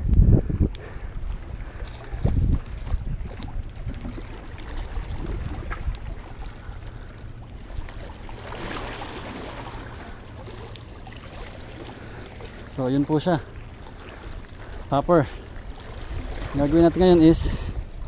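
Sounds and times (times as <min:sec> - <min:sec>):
wind on microphone: 0:00.0 - 0:06.7, 0:16.0 - 0:18.0
fish splashing: 0:00.8 - 0:12.7
sea water washing against rocks: 0:00.8 - 0:18.0.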